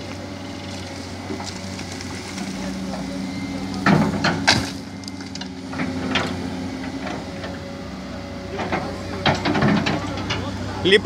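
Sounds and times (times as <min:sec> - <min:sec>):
roots and branches snapping: 0:00.0 - 0:02.9, 0:04.4 - 0:05.5
diesel engine running: 0:00.0 - 0:11.0.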